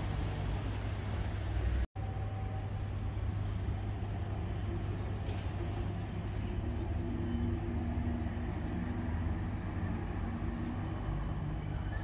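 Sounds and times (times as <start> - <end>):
tram rumbling: 0.0 - 1.9.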